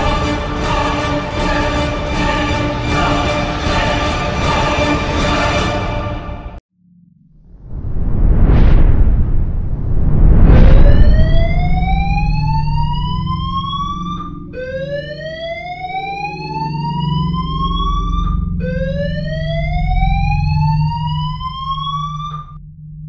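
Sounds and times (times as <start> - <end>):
low steady drone: 0.0 - 6.4, 9.2 - 23.0
rising alarm siren tone: 6.8 - 23.0.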